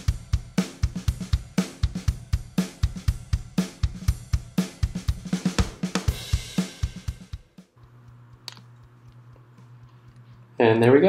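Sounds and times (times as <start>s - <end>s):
background music with drum beat: 0.0s - 10.1s.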